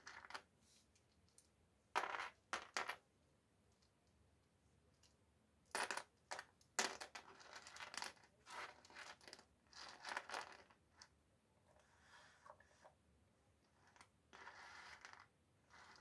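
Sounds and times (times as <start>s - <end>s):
wooden puzzle pieces clattering: 5.8s - 10.7s
hand sorting puzzle pieces: 5.8s - 11.1s.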